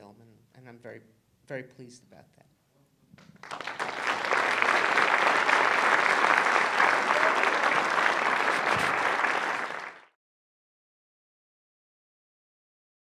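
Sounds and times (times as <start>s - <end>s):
audience applauding: 3.4s - 10.2s.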